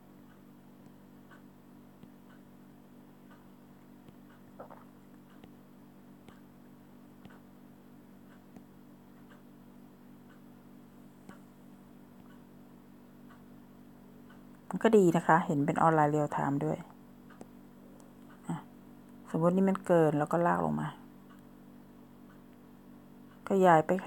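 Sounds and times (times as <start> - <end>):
low steady hum: 0.0 - 24.0
faint ticks: 0.2 - 12.6, 16.9 - 19.9
click: 6.2 - 6.4, 7.2 - 7.4, 11.2 - 11.5, 12.2 - 12.4, 17.3 - 18.4, 21.3 - 21.5.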